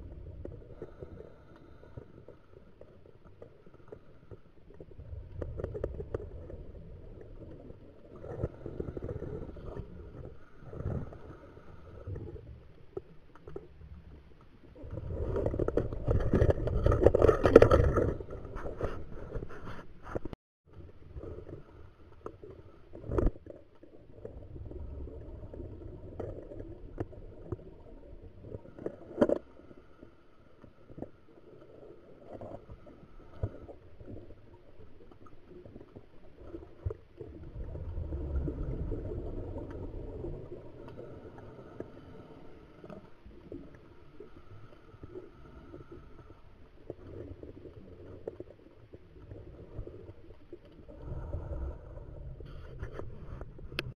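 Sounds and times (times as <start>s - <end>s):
low bubbling rumble: 0.0s - 19.4s, 20.7s - 29.0s, 30.7s - 53.9s
exhaled bubbles: 35.5s - 53.9s.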